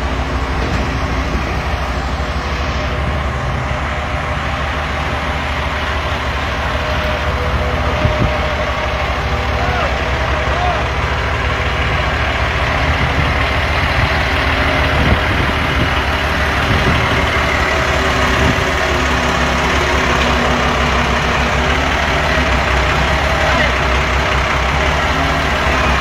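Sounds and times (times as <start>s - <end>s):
forklift engine running: 0.0s - 26.0s.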